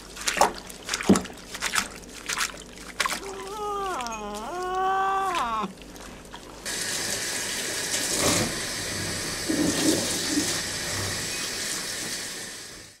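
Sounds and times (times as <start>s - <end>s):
water splashing: 0.0s - 6.6s
water running from tap sprayer: 6.6s - 13.0s.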